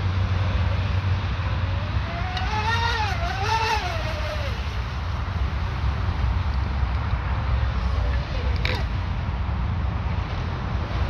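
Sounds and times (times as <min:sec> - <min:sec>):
rc boat motors whining: 0:00.0 - 0:06.8.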